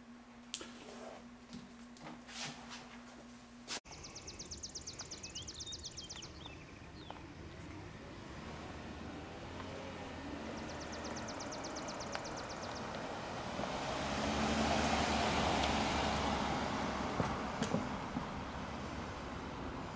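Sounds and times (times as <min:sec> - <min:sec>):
car driving past: 0:07.0 - 0:19.9.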